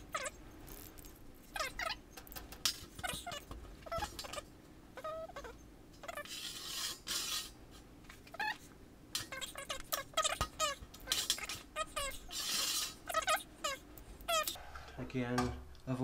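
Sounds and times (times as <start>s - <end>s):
marker squeaking on steel: 0.0s - 7.6s, 8.2s - 14.6s
marker scratching on steel: 5.0s - 7.6s, 9.2s - 14.6s.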